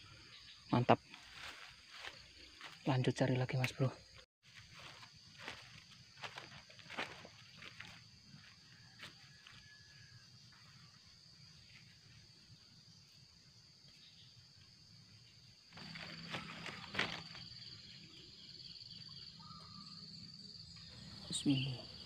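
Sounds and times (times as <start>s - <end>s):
insects droning: 0.0s - 22.0s
footsteps on dry leaves: 1.2s - 2.8s, 4.4s - 8.6s, 15.7s - 17.6s
rustling: 15.7s - 17.6s.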